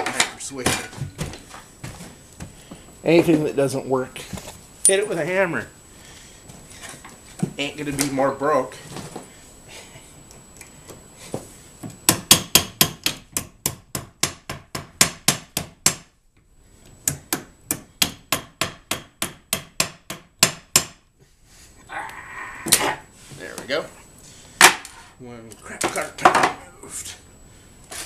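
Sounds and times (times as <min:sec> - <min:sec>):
hammer striking wheel hub: 0:12.1 - 0:16.1, 0:17.1 - 0:21.0.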